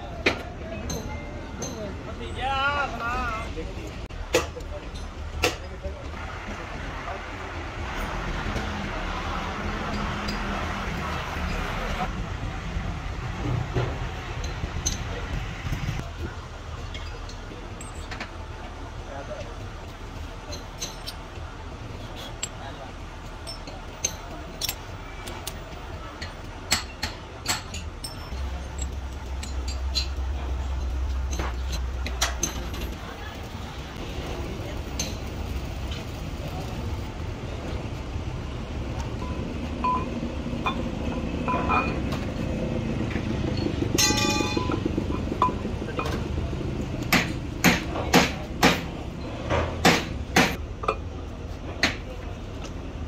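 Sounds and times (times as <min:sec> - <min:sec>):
metal parts clinking: 0:20.5 - 0:21.4, 0:23.4 - 0:33.0.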